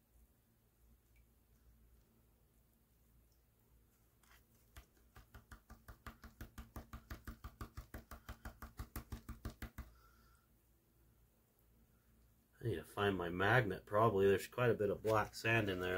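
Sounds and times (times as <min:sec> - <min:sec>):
hand tapping plastic pan rim: 0:04.7 - 0:10.0.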